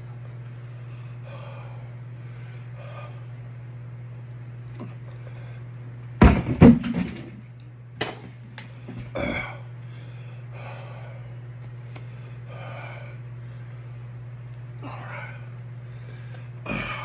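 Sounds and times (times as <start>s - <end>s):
steady low hum: 0.0s - 17.0s
man breathing hard: 0.5s - 3.4s, 8.8s - 14.2s, 14.8s - 17.0s.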